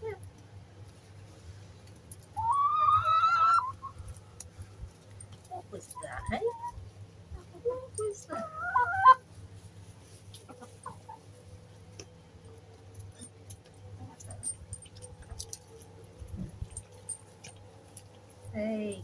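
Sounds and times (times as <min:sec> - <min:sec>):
hen calling: 0:02.3 - 0:04.0, 0:08.3 - 0:09.2.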